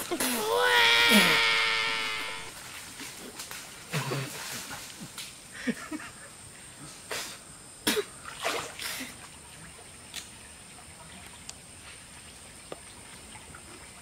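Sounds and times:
water splashing: 8.2s - 14.0s.

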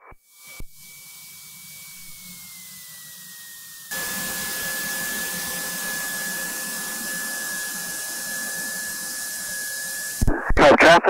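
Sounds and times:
high whine: 0.0s - 11.0s
light aircraft engine hiss: 3.9s - 10.3s.

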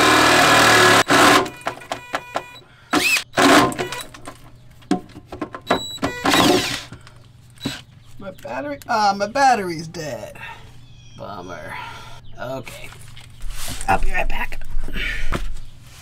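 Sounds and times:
cordless drill drilling metal: 0.0s - 4.2s, 5.7s - 7.0s, 7.6s - 7.8s.

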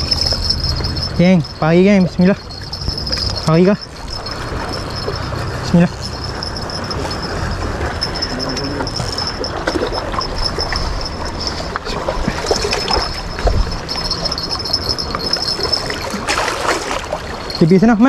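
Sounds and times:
thin high-pitched whine: 0.0s - 18.0s
wind rumbling on microphone: 0.0s - 18.0s
water splashing against rocks: 15.2s - 17.7s.

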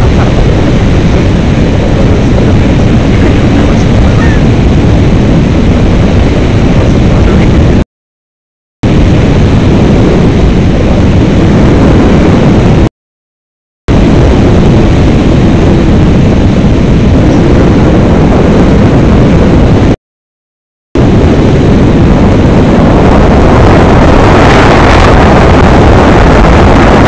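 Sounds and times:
wind rush on microphone: 0.0s - 7.8s, 8.8s - 12.9s, 13.9s - 20.0s, 21.0s - 27.0s.

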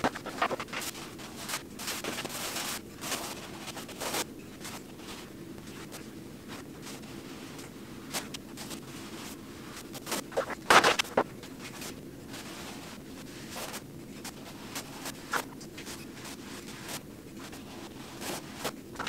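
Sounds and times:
paintbrush strokes on a wall: 0.0s - 19.0s.

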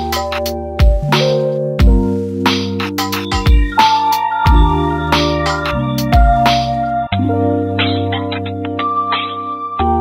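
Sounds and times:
keyboard chords over a beat: 0.0s - 10.0s.

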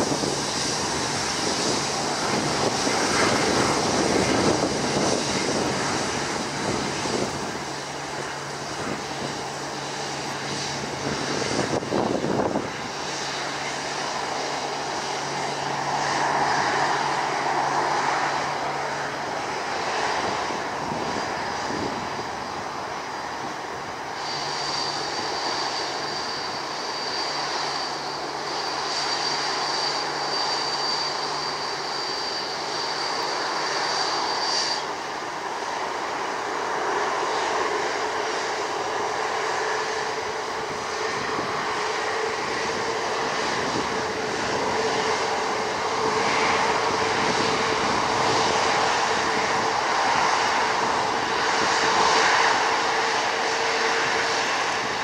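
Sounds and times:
jet engine hum: 0.0s - 55.0s.

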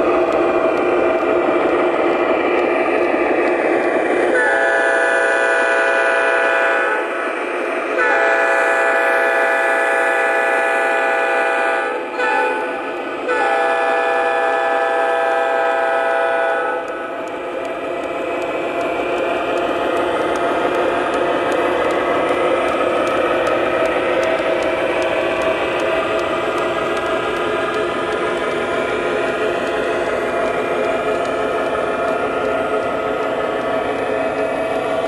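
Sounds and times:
model train running noise: 0.0s - 35.0s
model locomotive diesel horn: 4.3s - 7.1s, 8.0s - 17.0s.

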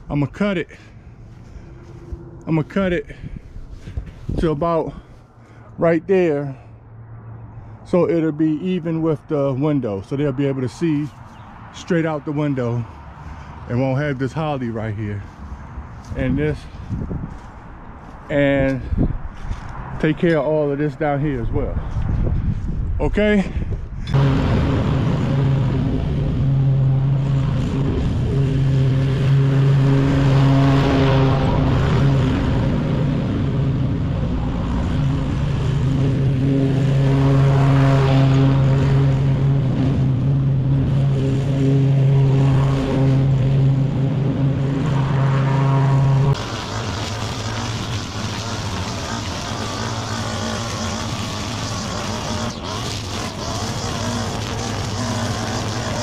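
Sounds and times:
lawn mower engine cutting grass: 0.0s - 5.2s, 10.7s - 18.8s, 24.1s - 56.0s
small-engine trimmer: 24.1s - 56.0s.

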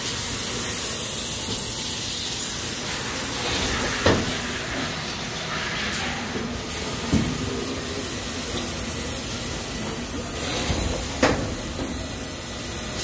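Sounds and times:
factory machinery hiss and hum: 0.0s - 13.0s.

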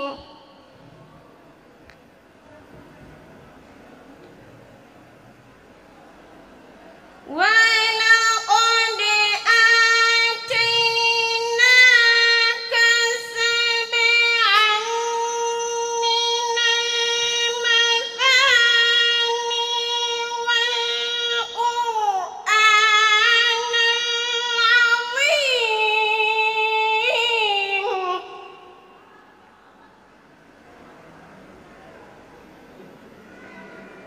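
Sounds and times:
girl chanting melodically: 0.0s - 0.7s, 7.3s - 29.0s.

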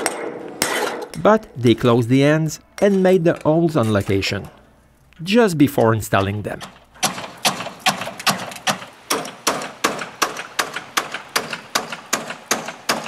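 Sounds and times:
hammer striking gutter: 6.6s - 13.0s.

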